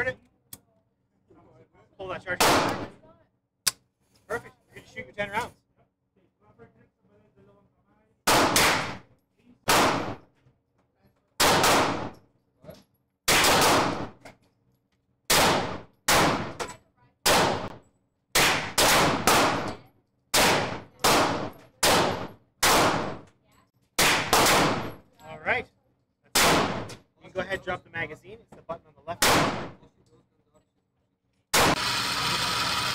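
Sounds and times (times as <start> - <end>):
semi-automatic gunshots: 2.4 - 3.0, 8.2 - 9.0, 9.6 - 10.2, 11.4 - 12.2, 13.3 - 14.2, 15.3 - 16.6, 17.2 - 23.2, 24.0 - 25.0, 26.3 - 26.9, 29.2 - 29.8, 31.5 - 31.8.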